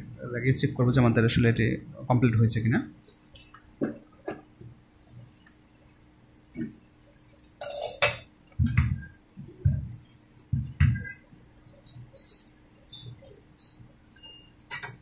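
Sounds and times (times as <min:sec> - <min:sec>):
faint steady hum: 0:00.0 - 0:15.0
handling clicks and clinks: 0:10.6 - 0:15.0.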